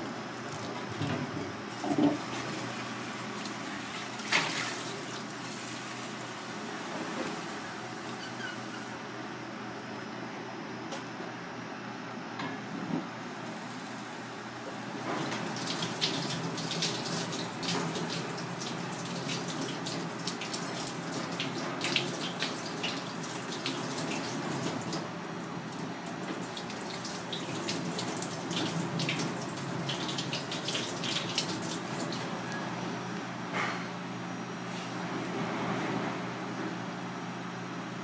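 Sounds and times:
tap water running into sink: 15.2s - 25.1s, 25.7s - 32.3s.

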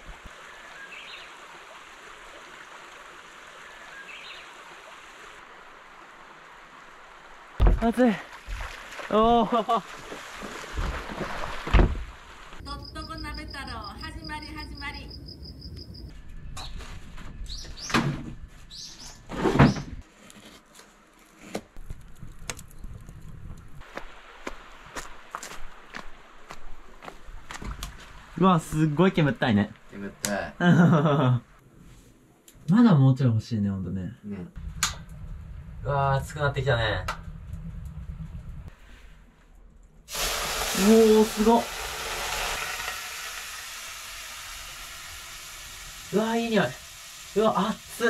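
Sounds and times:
small bird chirping: 12.7s - 16.8s, 18.7s - 19.2s.

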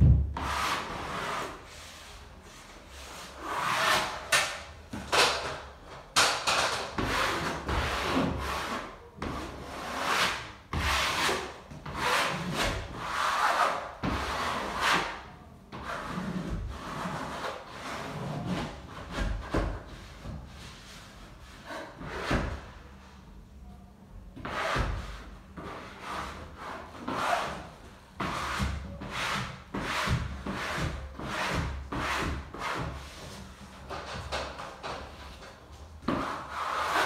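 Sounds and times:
wallpaper smoother rubbing swishes: 0.3s - 4.4s, 7.0s - 15.2s, 35.3s - 37.0s.

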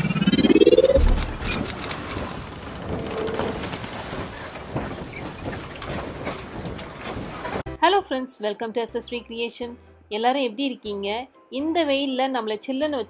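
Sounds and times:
low boom: 0.0s - 1.7s
rising whoosh: 0.0s - 1.9s
scattered clicks: 0.6s - 2.4s.

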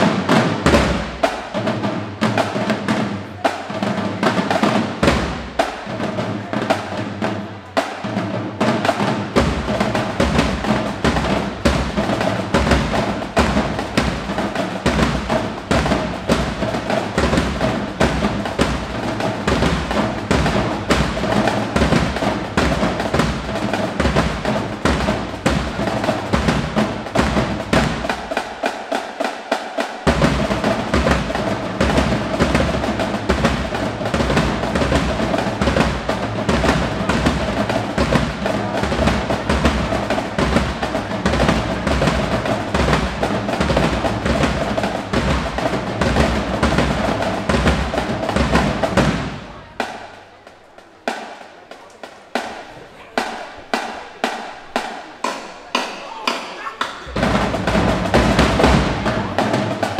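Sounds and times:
snare and tenor drum strokes: 0.0s - 59.9s
bass drums: 8.6s - 28.4s, 30.1s - 49.4s, 57.1s - 59.8s.

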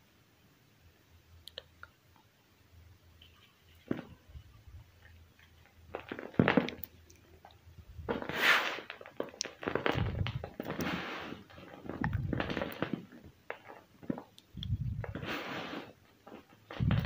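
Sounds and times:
hands crumbling chalk: 5.0s - 15.4s
powder falling onto pile: 5.9s - 6.9s, 8.0s - 14.3s.

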